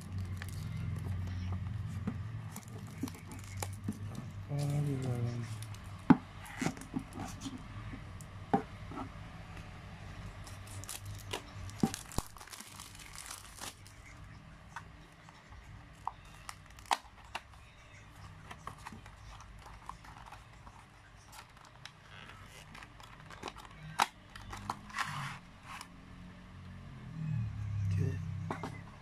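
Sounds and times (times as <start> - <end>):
packaging crinkling and rustling: 0.0 - 1.5, 2.5 - 5.9, 10.5 - 14.1.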